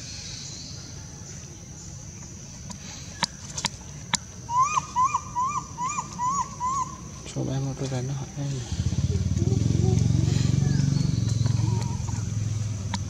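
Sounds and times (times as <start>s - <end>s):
insect drone: 0.0s - 13.0s
bird chirping: 4.5s - 7.6s, 8.2s - 13.0s.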